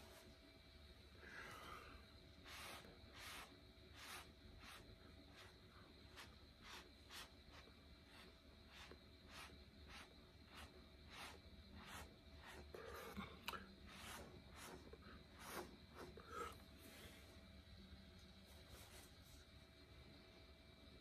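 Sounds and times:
low room hum: 0.0 - 21.0
stick scraping through wet paint: 2.4 - 16.2.

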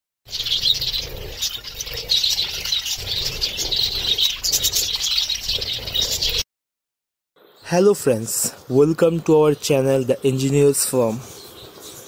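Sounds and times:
budgerigars chattering: 0.3 - 6.4.

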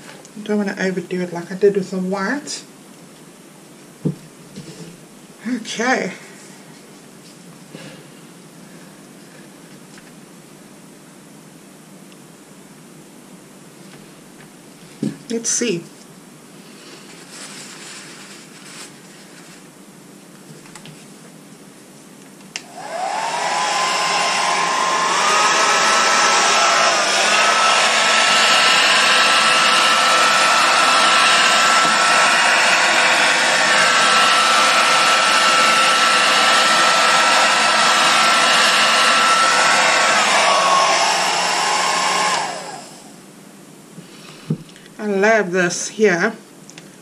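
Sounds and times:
faint handling sounds: 16.0 - 19.7
hair dryer running: 22.6 - 43.2.

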